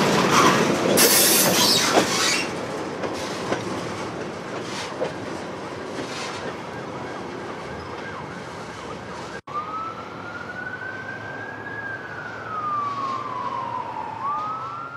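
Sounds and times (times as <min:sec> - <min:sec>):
freight train rolling past: 0:00.0 - 0:09.3
train wheel squeals: 0:00.2 - 0:02.6
distant emergency siren wailing: 0:06.4 - 0:14.9.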